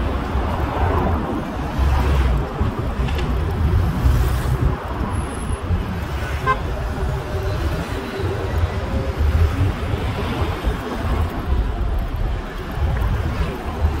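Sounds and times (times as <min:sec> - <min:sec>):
road traffic rumble: 0:00.0 - 0:14.0
car horn toot: 0:06.4 - 0:06.7.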